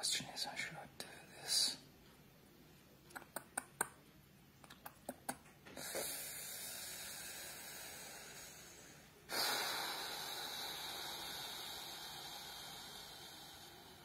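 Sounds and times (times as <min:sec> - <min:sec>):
steady hiss: 0:05.7 - 0:14.0.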